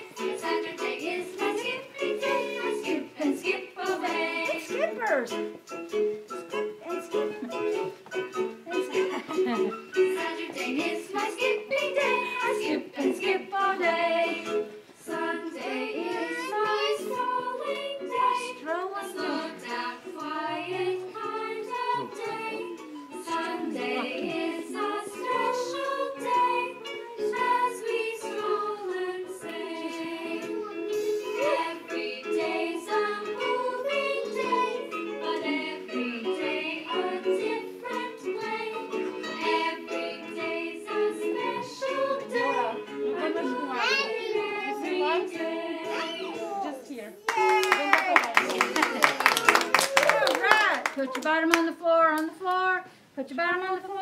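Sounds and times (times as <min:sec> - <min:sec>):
group of voices singing: 0:00.0 - 0:04.9, 0:09.4 - 0:46.5
children's song: 0:00.0 - 0:54.0.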